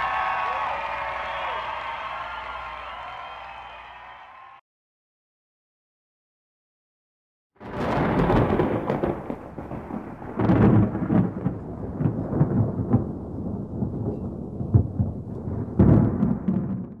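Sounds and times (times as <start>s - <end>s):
thunder crack and rumble: 7.6s - 17.0s.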